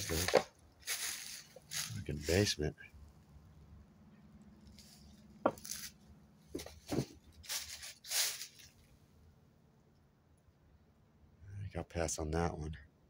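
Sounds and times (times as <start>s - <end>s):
footsteps crunching on dry leaves: 0.0s - 2.5s, 4.6s - 6.0s, 6.6s - 8.9s.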